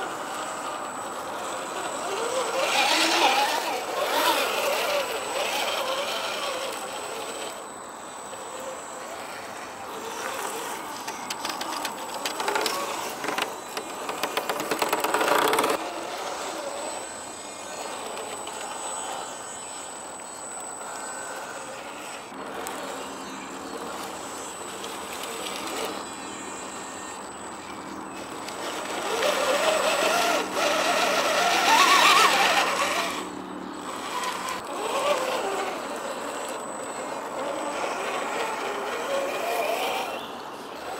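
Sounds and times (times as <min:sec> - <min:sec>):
electric motor and gears whining: 0:00.0 - 0:40.9
tyres scrabbling on rock: 0:10.2 - 0:16.4.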